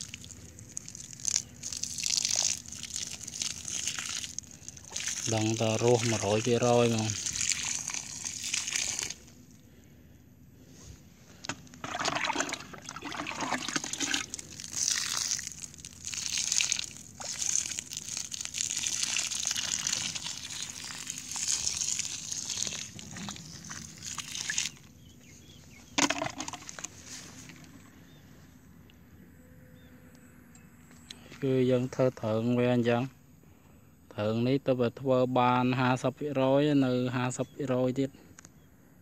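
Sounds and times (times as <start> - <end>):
water splashing onto soil: 0.0 - 9.4, 11.8 - 24.9.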